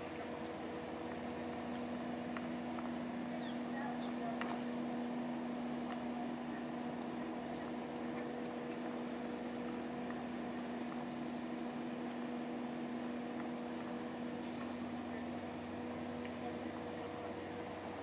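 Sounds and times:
steady machine hum: 0:00.0 - 0:18.0
faint ticks: 0:06.9 - 0:16.8.

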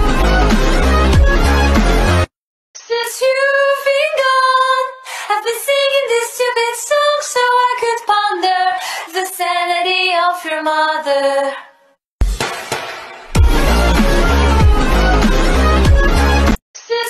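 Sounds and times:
woman singing unaccompanied: 0:02.9 - 0:11.7.

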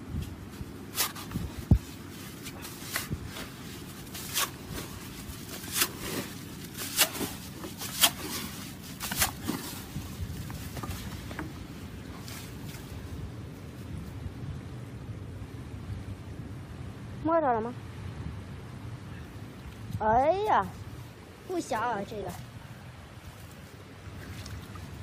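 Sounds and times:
steady low hiss: 0:00.0 - 0:25.0
shovel scraping wet sand: 0:00.8 - 0:11.2.

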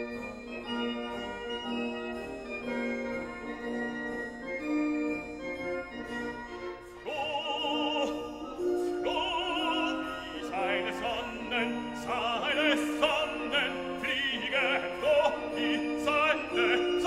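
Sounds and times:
operatic singing with vibrato: 0:06.8 - 0:17.0.

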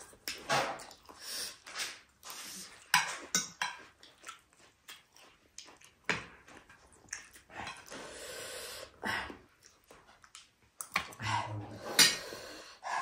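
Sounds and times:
person chewing: 0:00.0 - 0:08.2, 0:08.8 - 0:12.2.

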